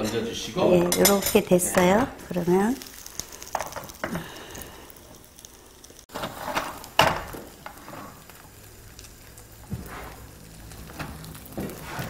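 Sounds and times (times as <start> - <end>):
faint sizzle: 0.0 - 12.0
pan and utensil knocking: 0.8 - 2.0.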